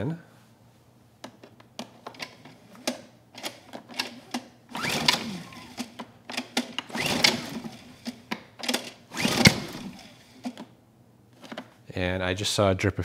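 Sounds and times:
starter cord pulls: 2.1 - 10.7
generator engine turning over: 4.7 - 10.6.

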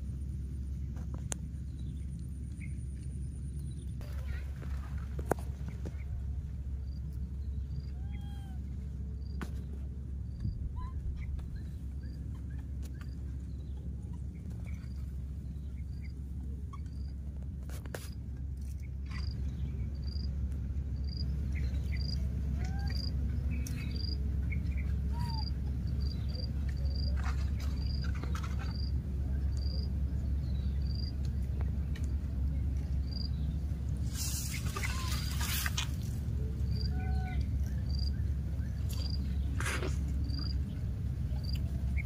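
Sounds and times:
low rumble: 0.0 - 42.0.

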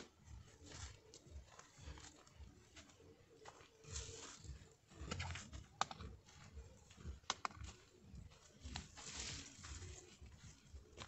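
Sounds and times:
footsteps crunching on dirt trail: 0.0 - 11.0
sharp clicks and snaps: 7.2 - 7.6.

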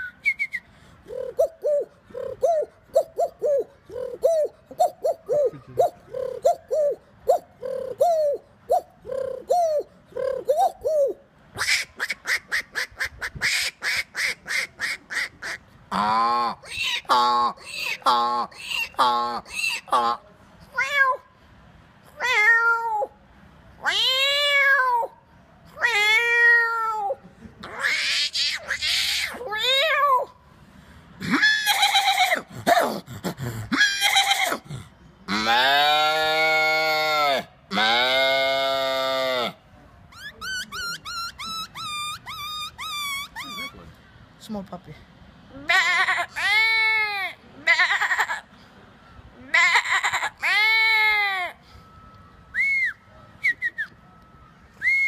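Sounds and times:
man making sharp bird-like calls: 0.0 - 20.2, 40.1 - 44.0
man imitating pigeon cooing: 1.0 - 14.7, 15.4 - 20.2, 31.2 - 35.6, 40.2 - 43.8.

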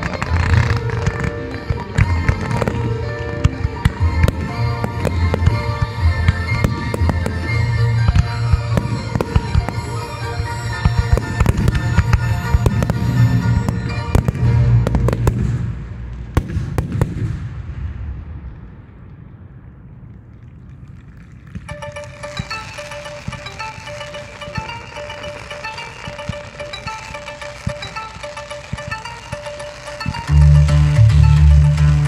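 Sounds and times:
fireworks shells bursting: 0.0 - 17.3, 20.1 - 32.0
fireworks crackling: 0.0 - 32.0
music with deep bass: 29.6 - 32.0.

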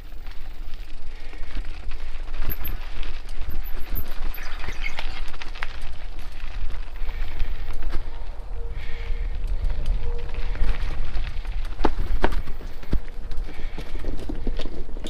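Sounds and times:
bike rattling over rough ground: 0.0 - 15.0
tyres rolling on dirt trail: 0.0 - 15.0
wind on microphone: 6.4 - 15.0.

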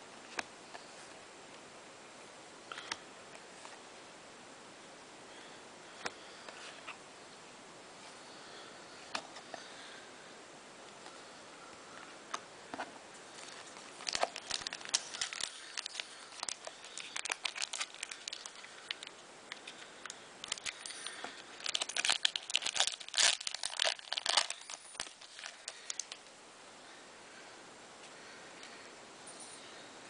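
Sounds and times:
trading card packets crinkling: 13.3 - 26.2.

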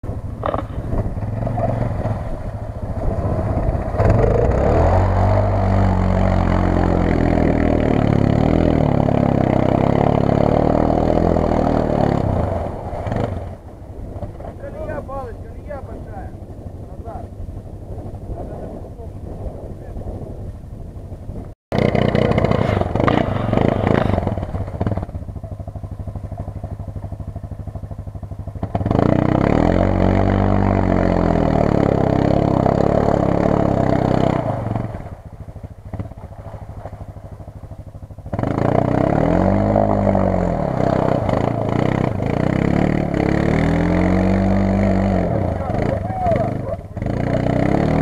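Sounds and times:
quad bike engine revving: 0.0 - 17.4, 21.7 - 48.0.

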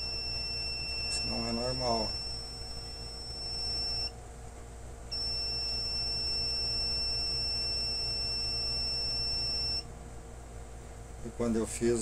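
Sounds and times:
high-pitched buzzer beep: 0.0 - 4.1, 5.1 - 9.9.

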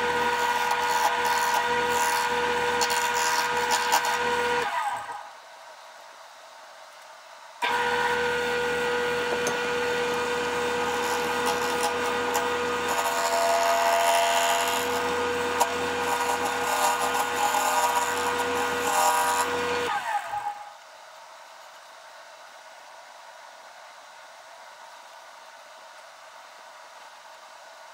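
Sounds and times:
gouge scraping spinning wood: 0.0 - 5.2, 7.6 - 20.7
lathe motor humming: 0.0 - 5.2, 7.6 - 20.7
lathe winding down: 7.6 - 20.7.

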